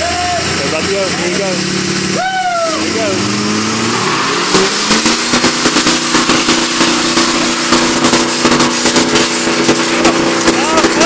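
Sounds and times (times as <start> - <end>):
diesel truck engines at full throttle: 0.0 - 11.0
rapid crackling pops: 4.6 - 11.0.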